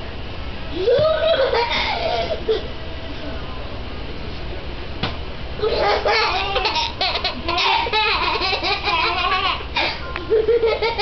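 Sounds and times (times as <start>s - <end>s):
baby and toddler laughing: 0.8s - 2.6s, 5.6s - 11.0s.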